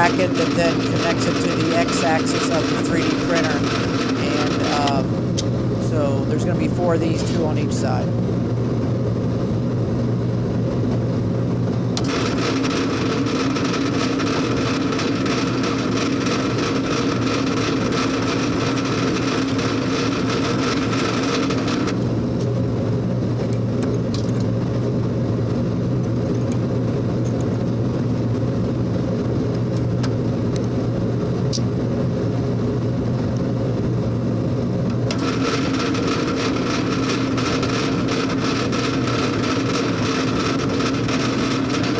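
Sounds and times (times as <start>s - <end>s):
drill bit cutting metal whine: 0.0s - 5.2s, 12.0s - 22.0s, 35.1s - 41.9s
drill press motor humming: 0.0s - 8.4s, 12.0s - 22.0s, 34.9s - 41.9s.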